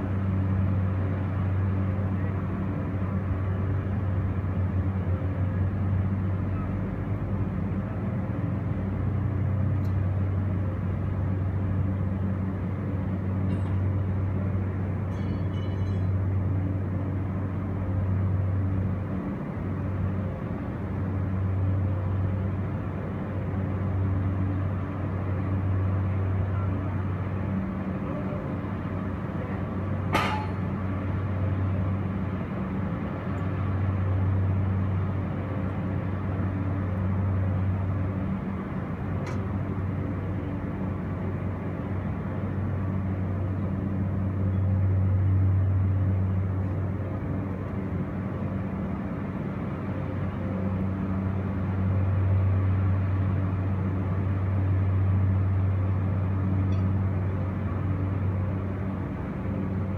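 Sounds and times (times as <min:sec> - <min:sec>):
low machine hum: 0:00.0 - 0:59.9.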